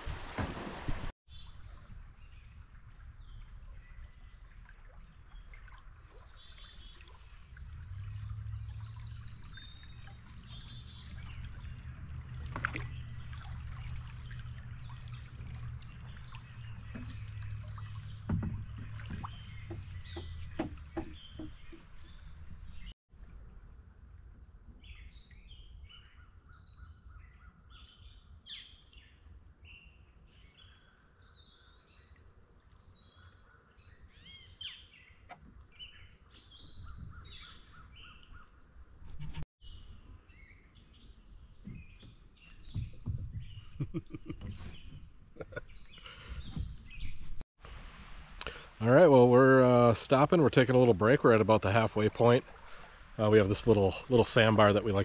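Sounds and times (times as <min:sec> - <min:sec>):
water splashing off paddle: 0:00.0 - 0:01.1, 0:02.8 - 0:22.9, 0:50.6 - 0:55.0
songbirds chirping and singing: 0:05.2 - 0:22.9, 0:24.7 - 0:39.0, 0:39.6 - 0:47.4
light knocks: 0:18.2 - 0:21.9.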